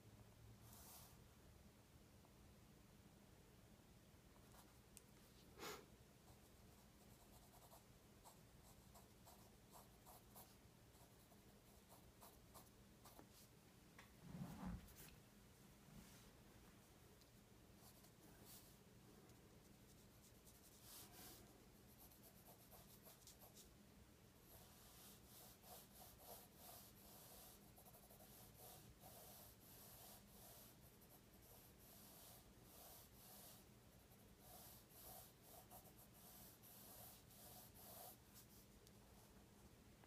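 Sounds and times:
pencil scratching on paper: 6.4 - 13.4, 19.6 - 23.7, 24.5 - 38.7.

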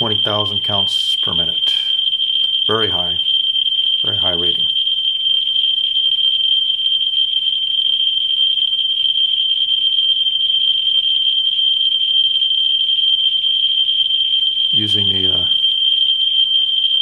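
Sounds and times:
geiger counter high-pitched tone: 0.0 - 5.0, 14.6 - 17.0.

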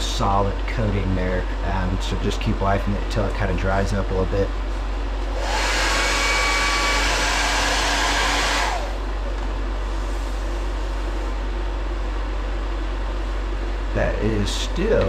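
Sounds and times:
fan hum: 0.0 - 15.0
heat gun blowing: 5.3 - 9.1.

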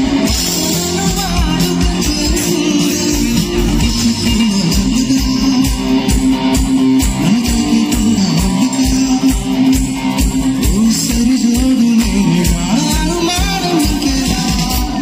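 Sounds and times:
guitar melody with bending notes: 0.0 - 15.0
keyboards: 0.0 - 15.0
steady drum beat: 0.0 - 15.0.

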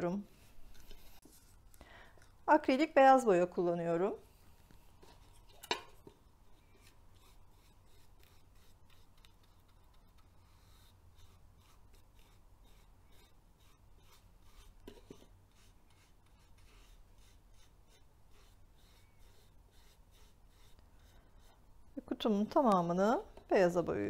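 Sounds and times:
paintbrush scraping on wood: 0.3 - 1.7, 4.3 - 21.6.

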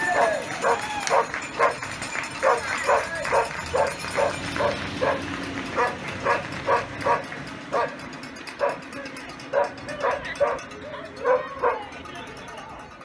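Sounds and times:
dog barking: 0.2 - 1.8, 2.4 - 5.2, 5.8 - 8.0, 8.6 - 8.8, 9.5 - 10.6, 11.2 - 11.8.

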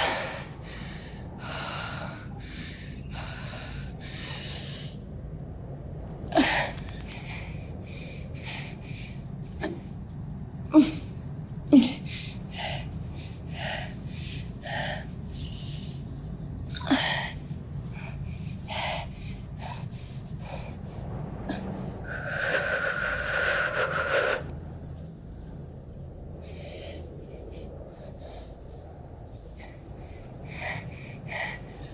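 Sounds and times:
steady low hum: 0.0 - 31.9
woman breathing hard and gasping: 10.7 - 24.5.

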